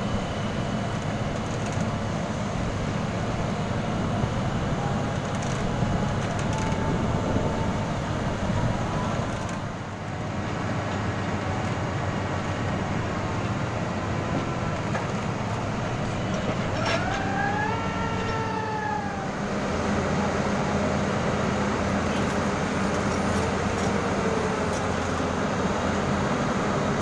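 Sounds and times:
diesel engine running: 0.0 - 27.0
pitched whine: 11.3 - 21.5.

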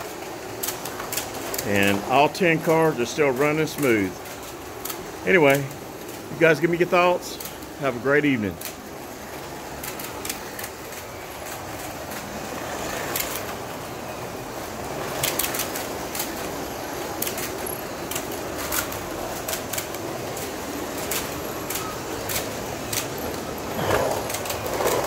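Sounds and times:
slot cars whirring: 0.0 - 25.0.

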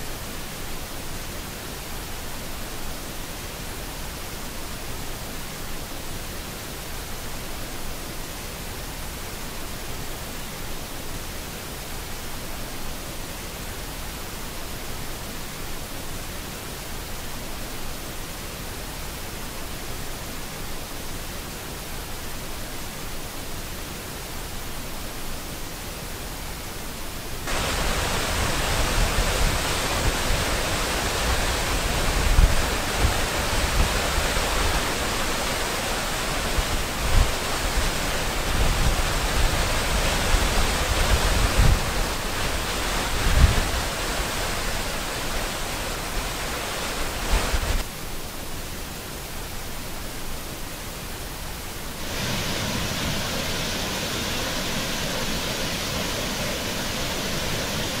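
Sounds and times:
waterfall rushing: 22.9 - 47.9, 51.6 - 58.0.

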